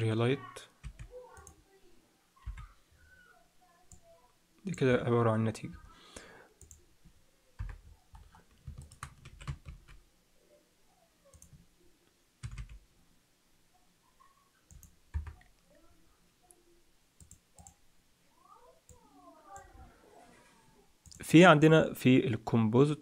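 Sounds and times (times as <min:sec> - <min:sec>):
computer mouse clicks: 0:06.6 - 0:06.8, 0:07.6 - 0:10.0, 0:11.3 - 0:11.6, 0:14.7 - 0:15.6, 0:17.2 - 0:17.8.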